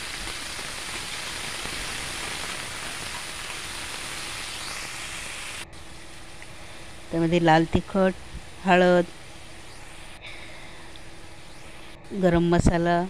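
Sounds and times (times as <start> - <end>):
beans sizzling in hot oil: 0.0 - 5.6.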